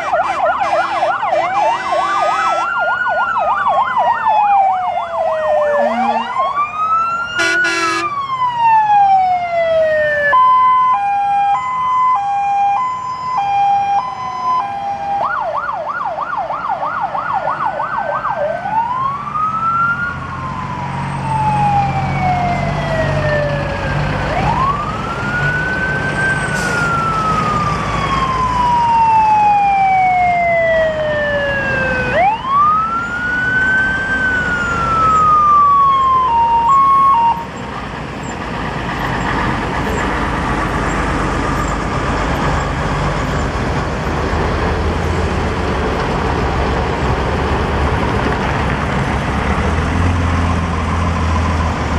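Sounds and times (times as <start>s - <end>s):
fire engine sirens wailing: 0.0s - 51.9s
truck engines rumbling: 0.0s - 51.9s
short horn blast: 5.7s - 6.4s, 7.4s - 8.1s.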